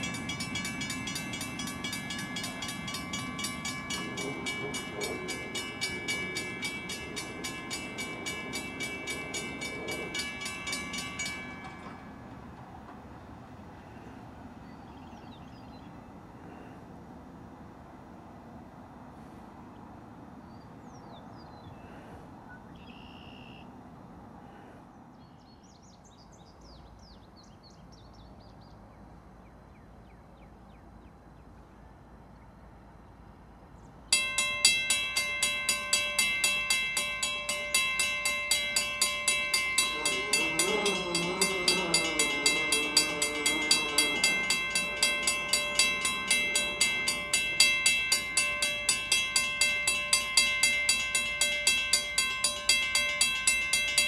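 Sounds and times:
bird chirps: 22.5s - 23.7s.

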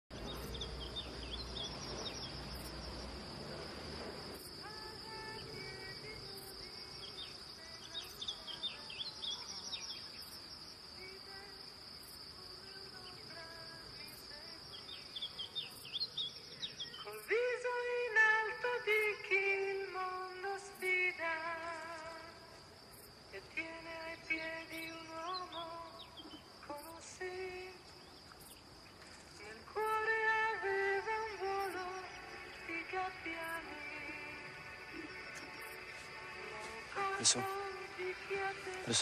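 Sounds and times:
bird chirps: 0.1s - 2.8s, 6.9s - 10.7s, 14.7s - 17.3s
crickets chirring: 0.1s - 39.0s
music with singing voice: 4.5s - 10.0s, 10.9s - 14.9s, 16.9s - 22.7s, 23.3s - 28.0s, 29.0s - 39.0s.

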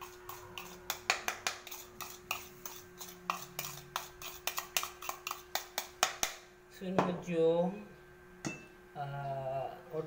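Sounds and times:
metal spoon scraping a bowl: 0.0s - 6.0s.

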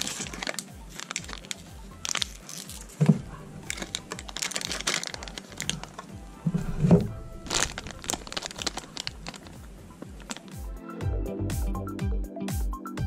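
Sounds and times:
plastic wrappers crinkling: 0.0s - 10.7s
music with pulsing bass: 5.5s - 13.0s.

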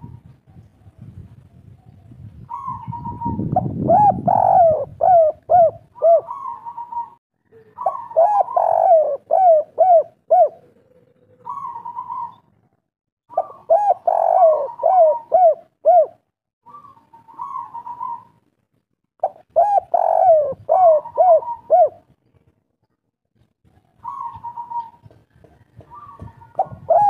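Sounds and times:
dove cooing: 2.5s - 12.5s, 13.3s - 18.4s, 19.2s - 22.1s, 23.8s - 27.0s.

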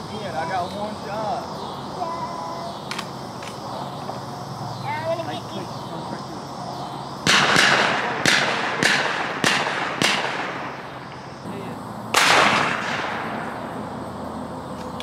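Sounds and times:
shotgun shots with echo: 7.2s - 11.3s, 12.1s - 13.6s.

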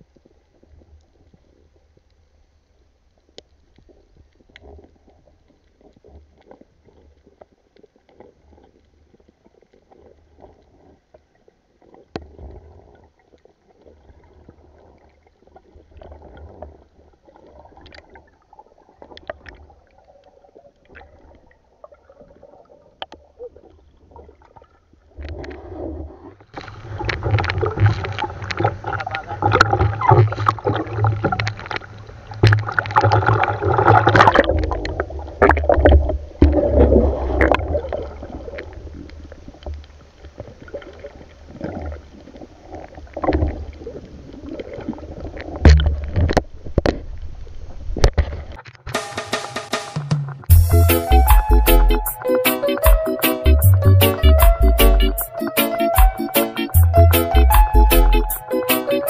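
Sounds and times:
faint underwater clicks: 0.0s - 25.6s
waves sloshing and splashing: 4.1s - 48.9s.

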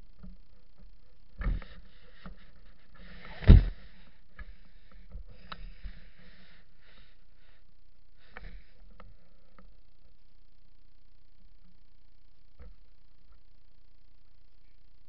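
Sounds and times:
bumps on camera body: 1.4s - 3.9s.

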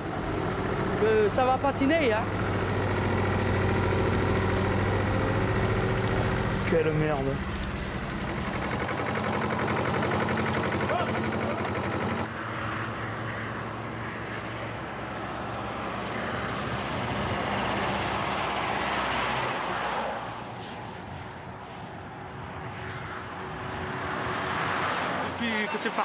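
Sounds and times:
loader engine running: 0.0s - 12.3s
motorway road noise: 0.0s - 26.0s
vehicles passing: 0.0s - 26.0s.

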